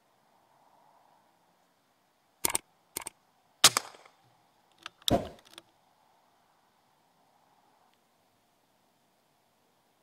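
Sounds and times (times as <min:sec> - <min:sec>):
rifle action clicking: 0:02.4 - 0:04.1
air rifle shot crack: 0:03.6 - 0:04.1.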